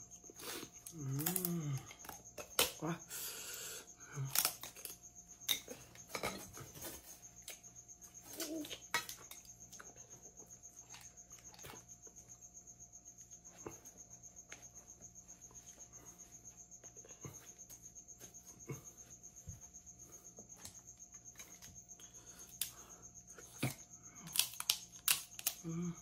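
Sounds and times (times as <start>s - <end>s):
cricket trilling: 0.0s - 26.0s
crab shells cracking: 24.3s - 25.6s.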